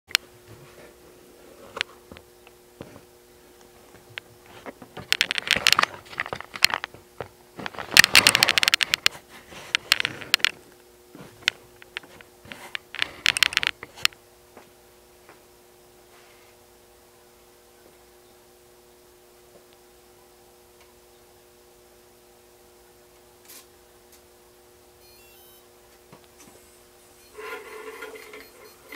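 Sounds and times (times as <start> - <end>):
crackling handling noise: 0.1 - 14.2, 26.2 - 28.9
faint electrical hum: 0.1 - 28.9.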